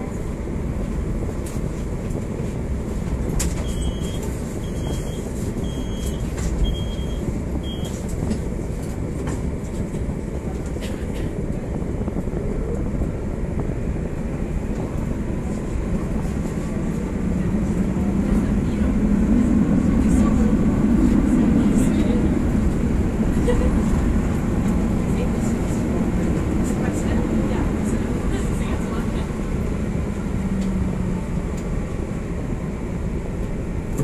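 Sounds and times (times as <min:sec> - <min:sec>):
tram rumble and hum: 0:00.0 - 0:34.0
short high beeps: 0:03.7 - 0:07.9.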